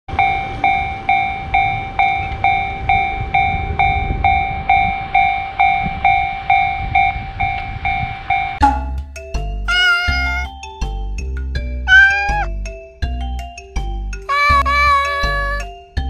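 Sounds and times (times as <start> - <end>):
railroad crossing warning bell: 0.1 - 8.9.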